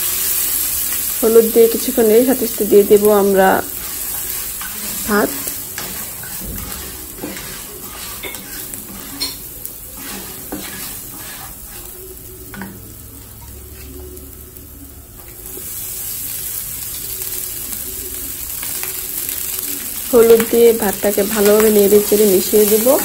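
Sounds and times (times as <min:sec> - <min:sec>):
food sizzling in hot oil: 0:00.0 - 0:23.0
spatula scraping and tapping pan: 0:03.7 - 0:12.8, 0:20.2 - 0:23.0.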